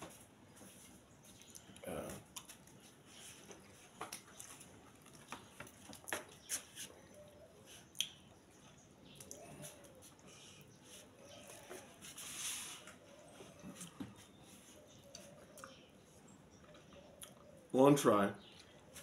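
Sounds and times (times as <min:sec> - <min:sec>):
person chewing: 0:01.4 - 0:07.0, 0:07.8 - 0:08.2
wet lip smacks and clicks: 0:07.9 - 0:08.2, 0:09.2 - 0:10.3.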